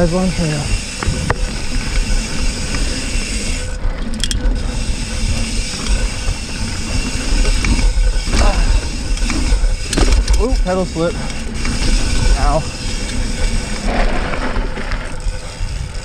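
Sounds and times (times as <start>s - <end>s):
bike tyres rattling over dirt: 0.0s - 16.0s
wind rumble on microphone: 0.6s - 16.0s
bike knocks: 7.6s - 10.6s.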